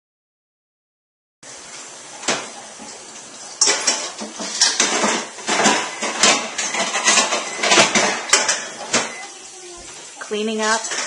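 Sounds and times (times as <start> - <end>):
running tap hiss: 1.4 - 11.0
dishes and pots clattering: 2.2 - 11.0.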